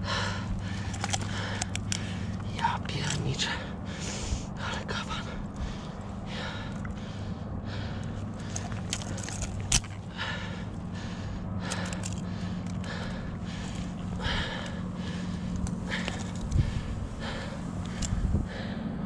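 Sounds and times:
steady low hum: 0.0 - 19.0
dry grass and clothing rustling: 8.0 - 18.4.

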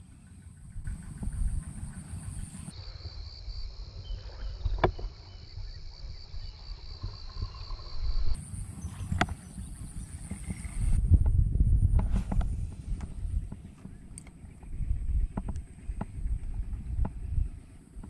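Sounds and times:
low rumble: 0.0 - 18.0
insects trilling: 0.1 - 11.0.

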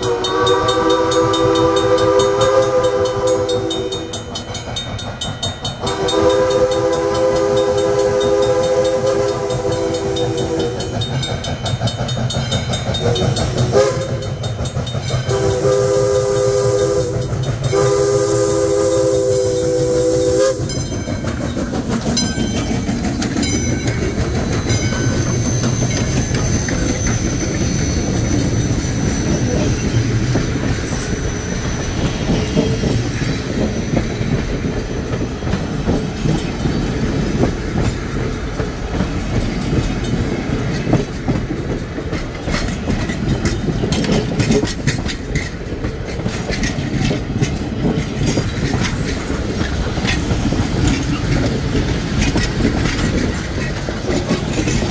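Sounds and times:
steam locomotive whistle: 0.0 - 4.4, 5.8 - 11.0, 13.0 - 14.5, 15.3 - 20.9, 24.6 - 33.7
steam train rolling past: 0.0 - 54.9.

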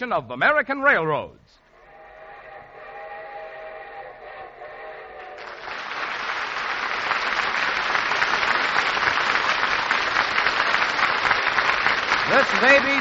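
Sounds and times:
train whistle chord: 1.7 - 5.7
applause: 5.2 - 13.0.

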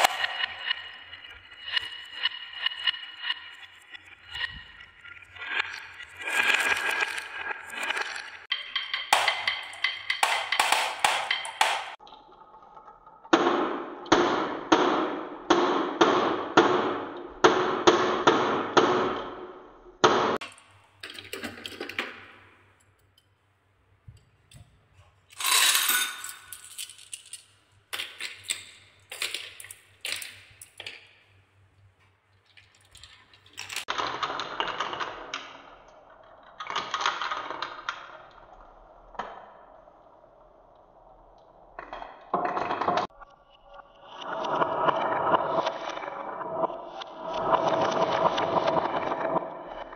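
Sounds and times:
marbles rolling down wooden chutes: 0.0 - 12.0, 25.4 - 31.3, 32.4 - 39.8, 41.6 - 43.1
marbles clinking together: 25.3 - 31.0.

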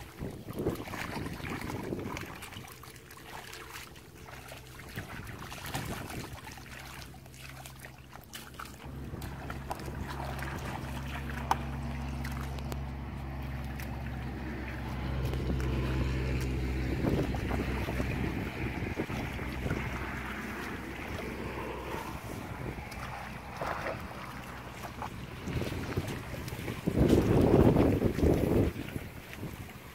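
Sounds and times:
wind on microphone: 0.0 - 2.8, 4.7 - 6.7, 14.1 - 29.9
engine humming: 0.0 - 29.9
hands splashing in muddy water: 0.0 - 29.9.

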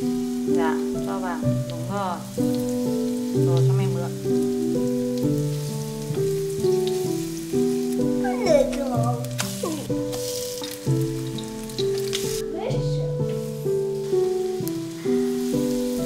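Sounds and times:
background music: 0.0 - 16.0
faint frying sizzle: 0.0 - 16.0.

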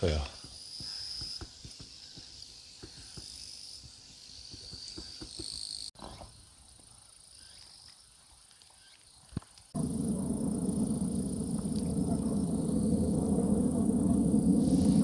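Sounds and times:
insects trilling: 9.8 - 15.0.

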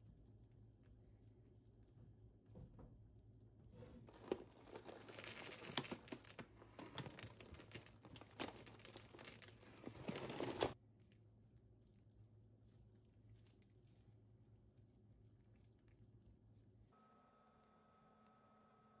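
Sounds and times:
packaging crinkling and tearing: 4.0 - 10.8.

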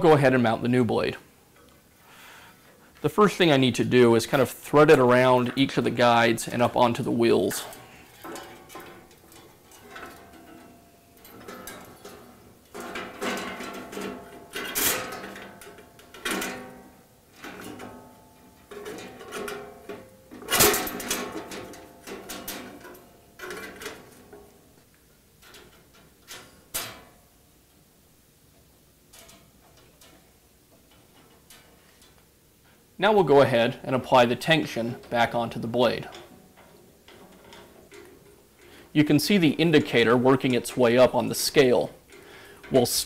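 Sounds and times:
saw blade clattering on metal: 7.6 - 16.8.

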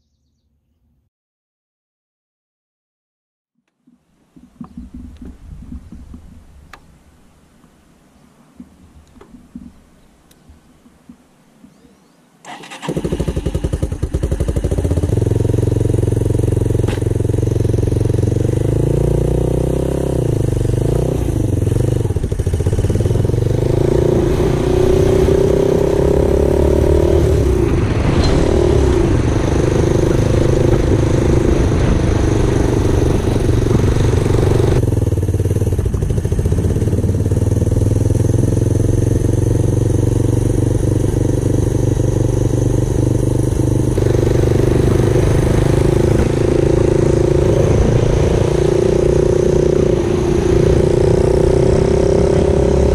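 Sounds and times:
small gasoline engine running: 12.5 - 27.6, 29.1 - 48.4.

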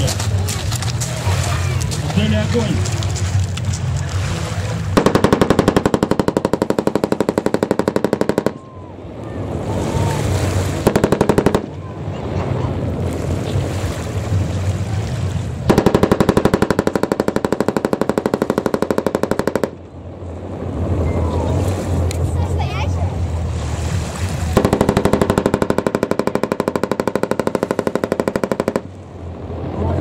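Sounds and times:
low steady rumble: 0.0 - 30.0
machine gun automatic fire: 5.0 - 8.6, 10.8 - 11.8, 15.7 - 19.8, 24.6 - 28.9.

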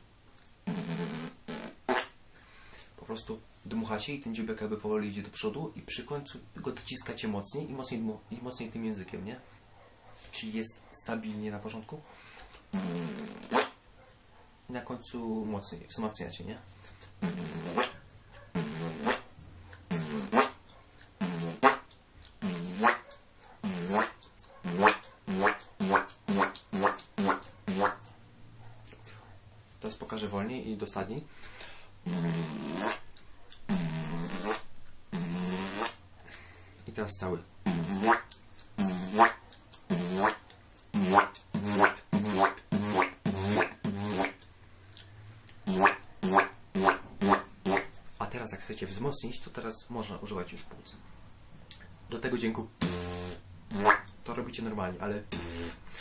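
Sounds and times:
beatboxed wobble bass: 0.4 - 2.2, 12.5 - 13.8, 17.0 - 18.0, 18.6 - 23.0, 23.6 - 28.1, 32.0 - 33.1, 33.7 - 36.0, 37.6 - 44.5, 45.5 - 48.1, 52.7 - 54.4, 55.2 - 55.8.

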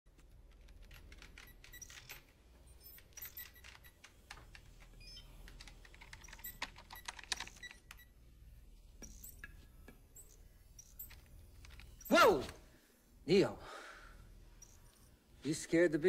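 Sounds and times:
typing on computer keyboard: 0.2 - 8.1.

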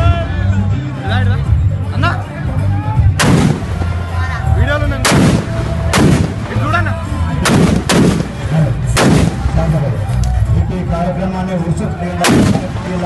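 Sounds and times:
firecracker bangs: 3.2 - 4.2, 5.0 - 6.8, 7.4 - 9.7, 12.2 - 13.0.

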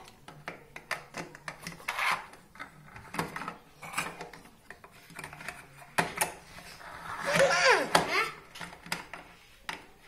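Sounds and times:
plastic toy blocks clicking: 0.0 - 6.4
blocks scraping on wood: 1.3 - 4.3.

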